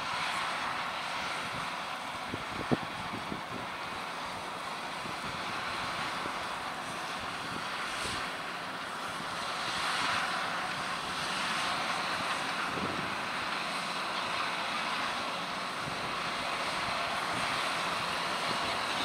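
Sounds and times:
tractor diesel engine under load: 0.0s - 19.0s.

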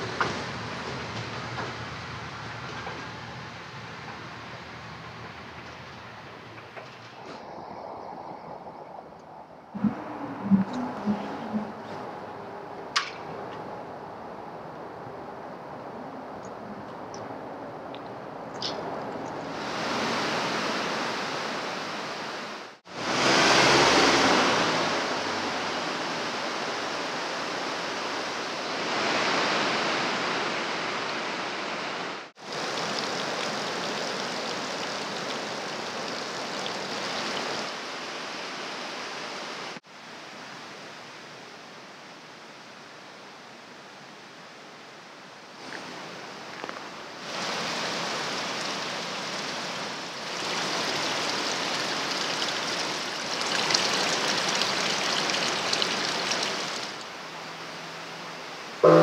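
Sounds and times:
running water rushing: 0.0s - 59.0s
water pouring into wooden trough: 50.2s - 57.0s.

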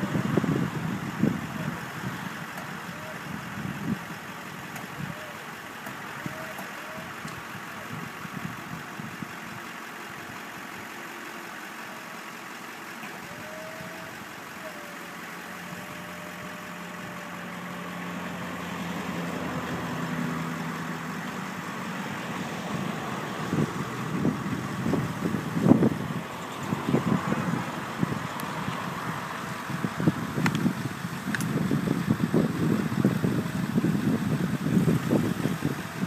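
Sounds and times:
wind buffeting microphone: 0.0s - 5.4s, 21.3s - 36.0s
truck engine and hydraulics: 0.0s - 36.0s.

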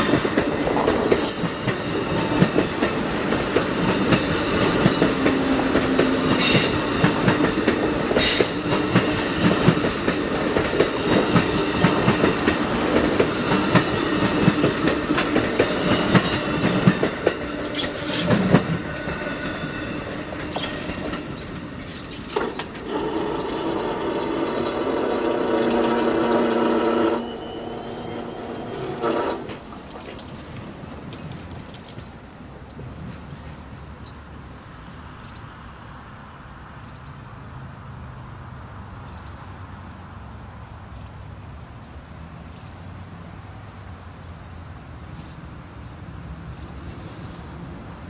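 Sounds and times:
train wheels rumbling and clicking: 0.0s - 34.2s.

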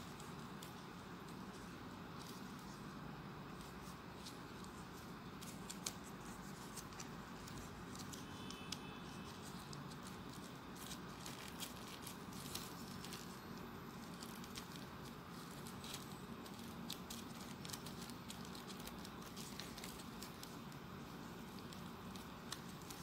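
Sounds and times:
background hiss: 0.0s - 23.0s
paper rustling with clicks: 0.0s - 23.0s.

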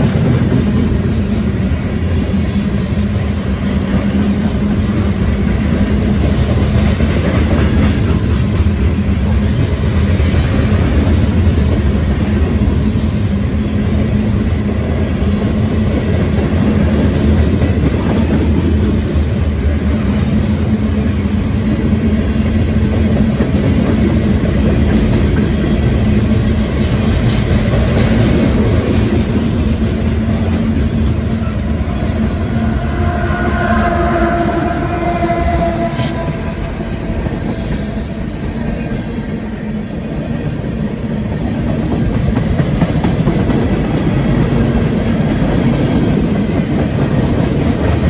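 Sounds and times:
train wheels rumbling on rails: 0.0s - 48.0s
diesel locomotive engine tone: 29.2s - 41.7s.

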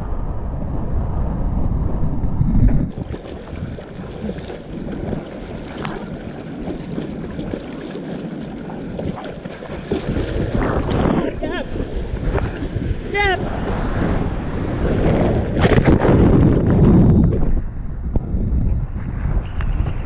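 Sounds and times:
churning water rumble: 0.0s - 20.0s
wind on microphone: 0.0s - 20.0s
water lapping and splashing: 1.9s - 17.6s.

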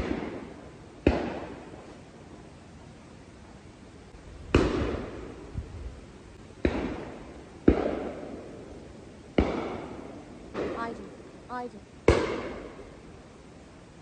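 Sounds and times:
shotgun shots with echo: 6.6s - 8.3s, 9.4s - 10.0s, 12.1s - 12.7s.

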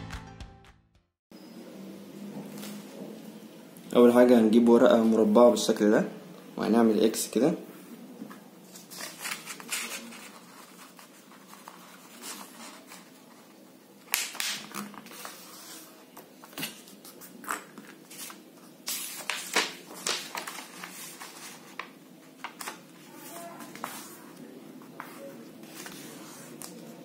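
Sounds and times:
paper rustling while folded: 8.7s - 27.0s.

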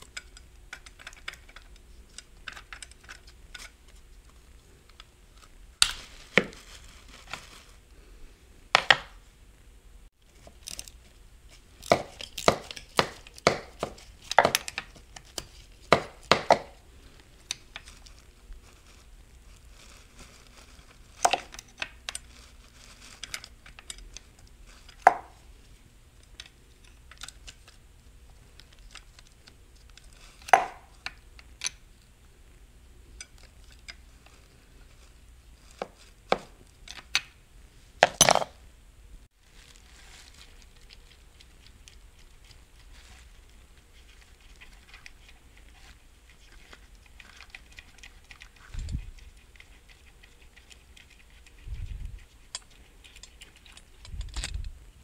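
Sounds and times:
metal tools clinking and knocking: 38.0s - 38.5s.

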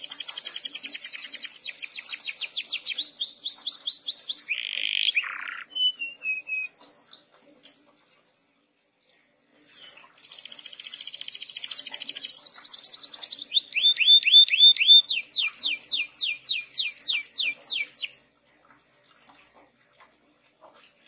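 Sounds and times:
canary singing: 0.0s - 7.2s, 10.4s - 18.3s.

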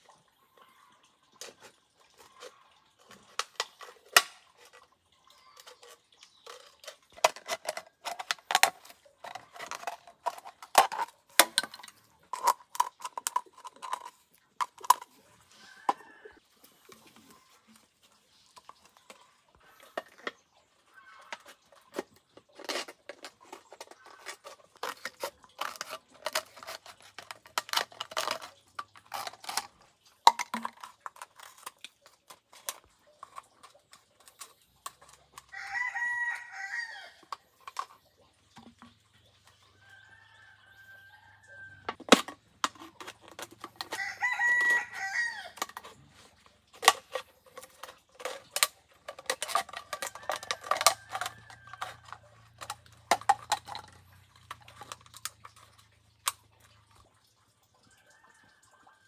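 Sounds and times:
rooster crowing: 35.5s - 37.2s, 43.9s - 45.6s.

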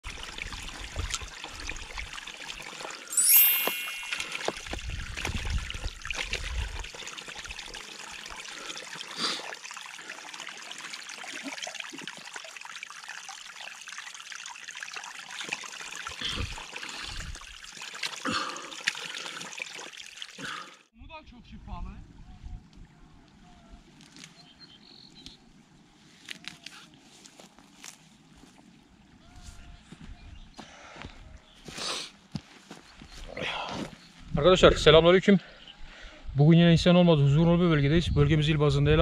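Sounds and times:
water trickling into trough: 0.0s - 3.1s, 4.1s - 20.9s
short high ringing: 3.2s - 4.8s.

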